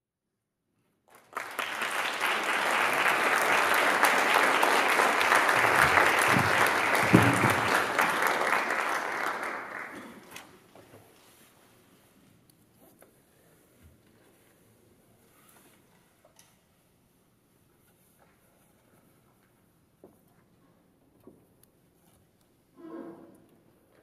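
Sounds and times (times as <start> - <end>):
audience applauding: 1.1 - 10.5.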